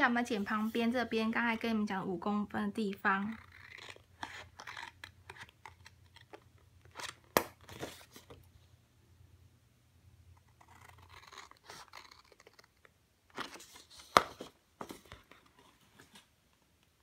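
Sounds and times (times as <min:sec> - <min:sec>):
scissors cutting cardstock: 0:10.5 - 0:12.7.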